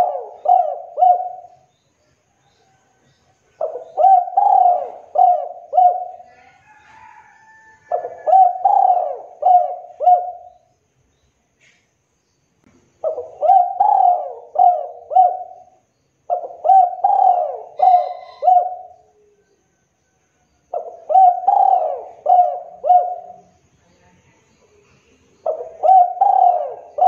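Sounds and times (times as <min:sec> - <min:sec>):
dove cooing: 0:00.0 - 0:01.7, 0:03.6 - 0:07.2, 0:07.8 - 0:10.7, 0:13.0 - 0:19.4, 0:20.7 - 0:23.5, 0:25.4 - 0:27.0.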